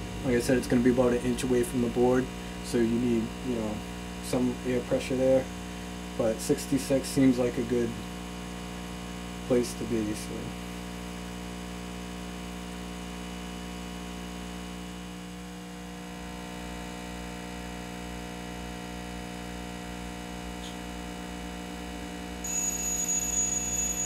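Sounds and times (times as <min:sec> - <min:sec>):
hot air station humming: 0:21.8 - 0:24.0
high-pitched timer alarm: 0:22.4 - 0:24.0.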